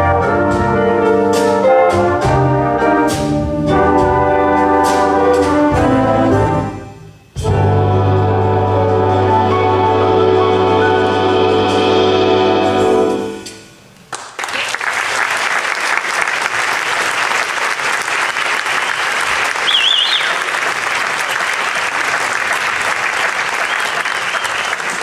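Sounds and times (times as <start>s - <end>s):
big jazz band chord: 0.0s - 13.8s
audience applause: 14.1s - 25.0s
warbling whistle from crowd: 18.9s - 20.5s, 23.6s - 24.8s.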